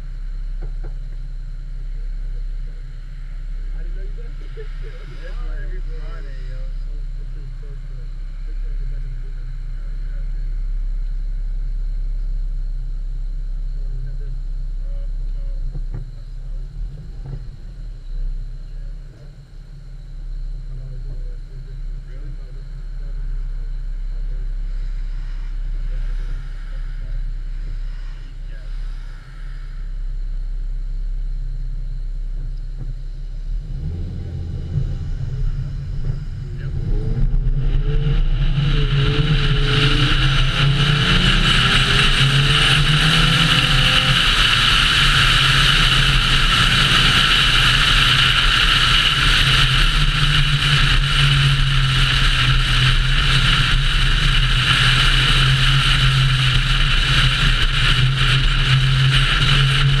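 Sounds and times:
car engine accelerating: 0.0 - 60.0
wind and road noise: 0.0 - 60.0.

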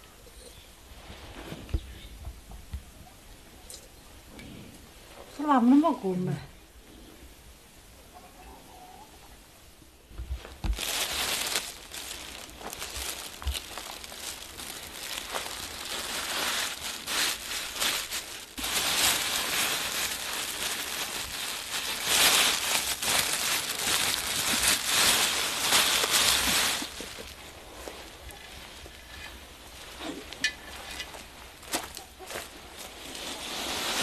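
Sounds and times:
plastic bags crinkling: 10.4 - 34.0.

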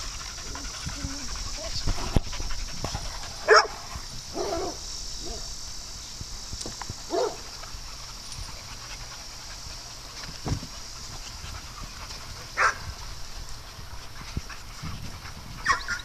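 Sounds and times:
dogs barking: 2.6 - 5.5, 7.1 - 7.5, 12.5 - 12.9, 15.6 - 16.0.

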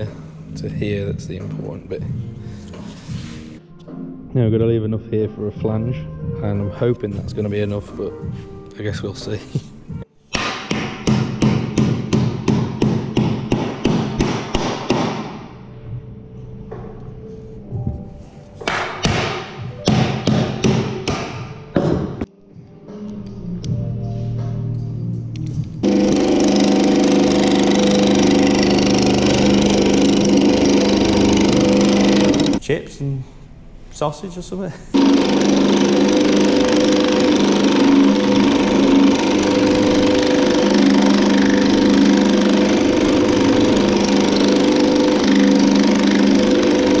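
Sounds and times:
power hammer rapid blows: 10.4 - 15.5, 18.8 - 21.4, 25.8 - 32.6, 35.0 - 47.0
motor hum: 25.6 - 32.6, 35.0 - 47.0.

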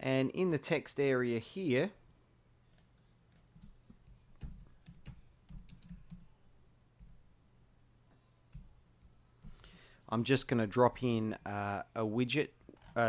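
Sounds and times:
faint keyboard typing: 2.7 - 6.4, 7.0 - 7.3, 8.5 - 9.6.

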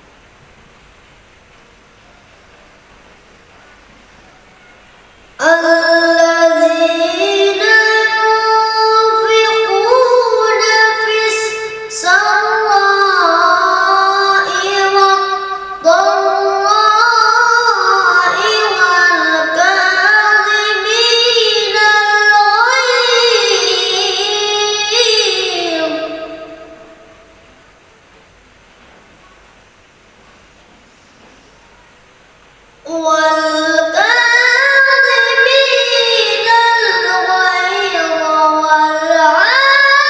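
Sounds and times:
boy reciting melodically: 4.2 - 27.6, 32.8 - 40.0.

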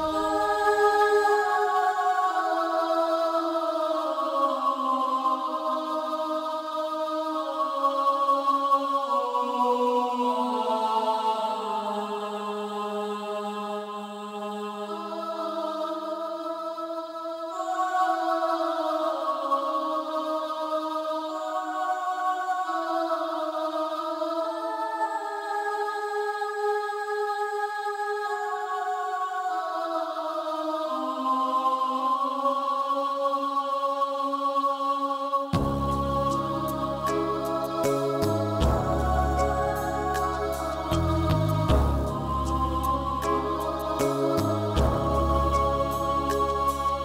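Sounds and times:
slow music with held notes: 35.6 - 47.0.

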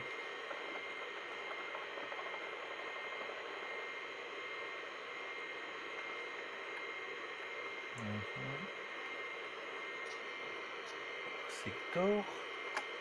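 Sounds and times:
thin steady whine: 0.0 - 13.0.

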